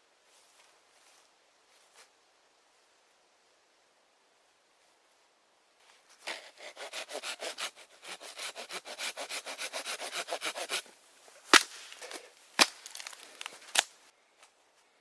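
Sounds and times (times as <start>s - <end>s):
saw cutting branch: 6.2s - 14.0s
sharp cracks: 11.5s - 14.1s.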